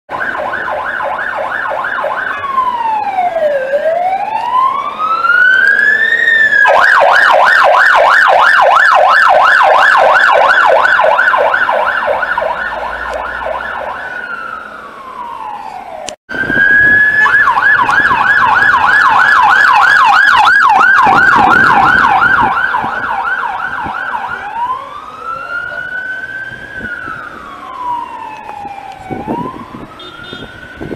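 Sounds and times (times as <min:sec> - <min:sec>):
police siren wailing and yelping: 0:00.1 - 0:30.9.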